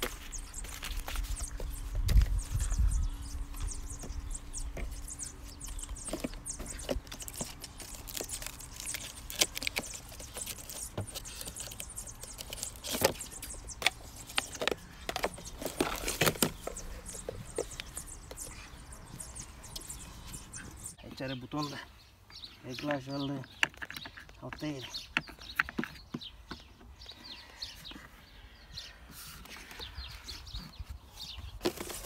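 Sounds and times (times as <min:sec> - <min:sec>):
cardboard and plastic bags rustling: 0:00.0 - 0:20.8, 0:31.4 - 0:32.0
plastic parts clicking and knocking: 0:06.0 - 0:18.4, 0:23.4 - 0:26.6.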